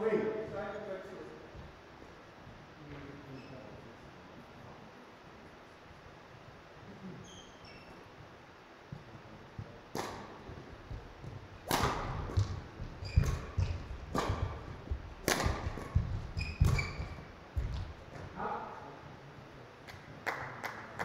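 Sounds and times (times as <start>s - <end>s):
shoes squeaking on court floor: 3.3s - 3.8s, 7.1s - 8.3s, 10.1s - 18.4s
footfall thuds: 9.6s - 18.4s
racket hitting shuttlecock: 9.9s - 18.4s.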